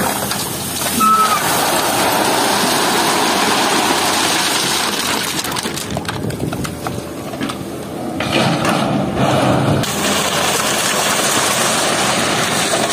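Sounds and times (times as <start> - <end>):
stones and water pouring: 0.0 - 6.5, 9.8 - 12.9
excavator diesel engine: 0.0 - 12.9
stones knocking and clattering: 3.1 - 7.6.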